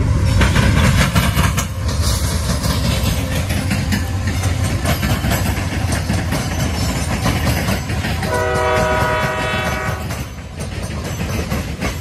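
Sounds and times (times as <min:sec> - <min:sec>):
train wheels clacking on rails: 0:00.0 - 0:12.0
train horn chord: 0:08.2 - 0:10.3.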